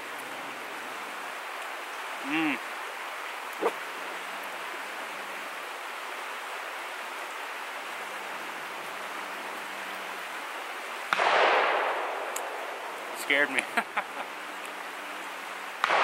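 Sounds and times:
steady rushing hiss: 0.0 - 16.0
shotgun blast echoing: 11.1 - 12.6.

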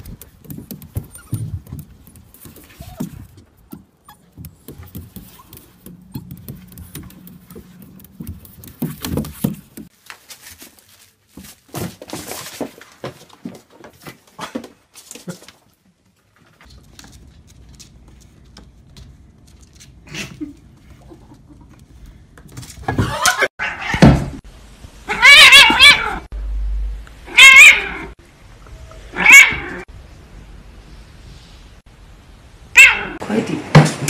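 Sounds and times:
cat meowing loudly: 25.1 - 26.3, 27.3 - 28.2, 29.1 - 29.8, 32.8 - 33.2.

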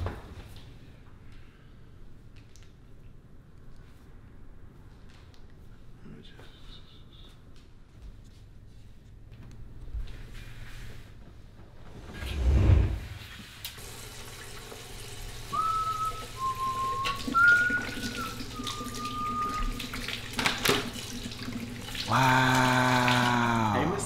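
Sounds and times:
faucet running water: 13.1 - 24.0
person whistling a tune: 15.5 - 19.8
low voice holding a note: 22.1 - 24.0.

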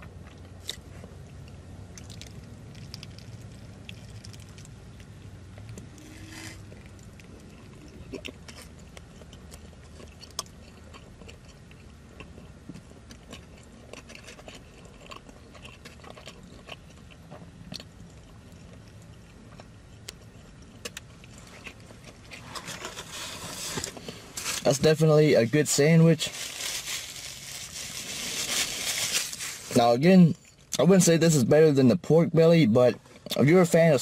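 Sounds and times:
chewing with crunchy clicks: 0.0 - 24.2, 33.0 - 33.5.

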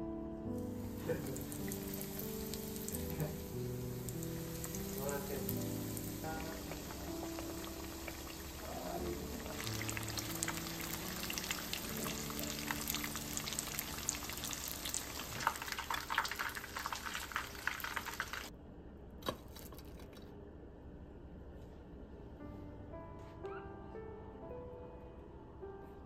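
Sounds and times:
fish deep-frying in oil: 0.8 - 18.5.

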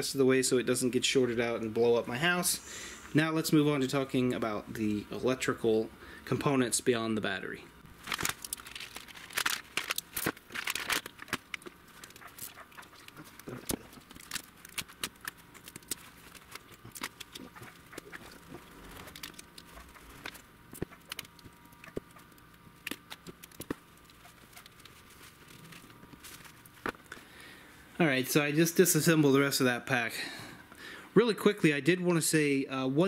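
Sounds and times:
battery cells clicking and clattering: 8.0 - 27.2.

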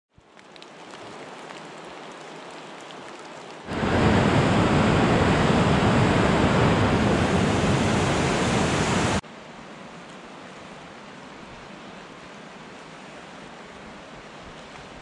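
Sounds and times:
river rapids rushing: 3.7 - 9.2.

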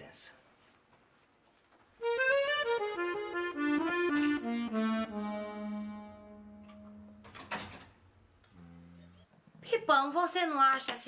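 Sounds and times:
accordion music: 2.0 - 7.4.

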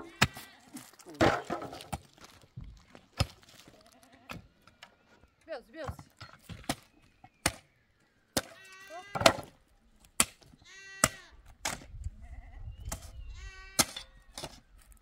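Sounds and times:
livestock bleating: 0.0 - 1.0, 3.8 - 4.4, 8.5 - 9.3, 10.6 - 11.4, 12.2 - 14.2.

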